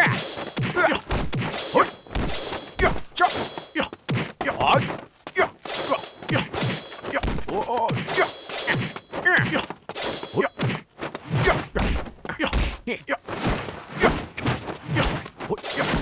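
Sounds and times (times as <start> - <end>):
punch impacts and thuds: 0.0 - 5.0, 10.6 - 15.2
fighters shouting and grunting: 0.0 - 16.0.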